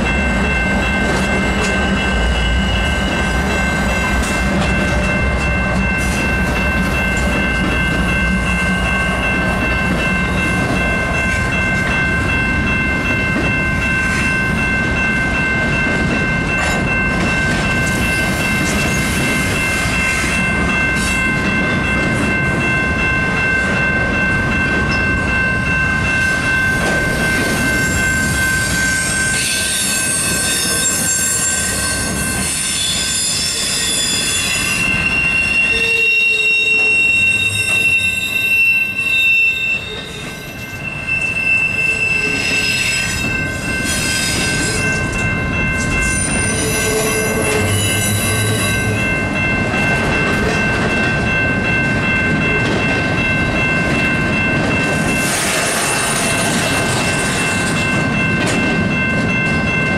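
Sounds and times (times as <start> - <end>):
freight train wheels rumbling: 0.0 - 59.9
high ringing tones: 0.0 - 59.9
wheels clickety-clack: 49.7 - 59.9.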